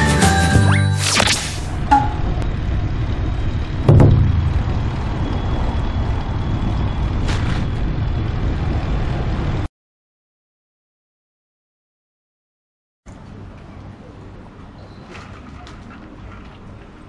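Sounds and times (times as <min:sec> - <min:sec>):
short hiss: 0:01.0 - 0:01.8
street traffic road rumble: 0:01.7 - 0:09.7, 0:13.1 - 0:17.0
loud thump: 0:03.8 - 0:05.4.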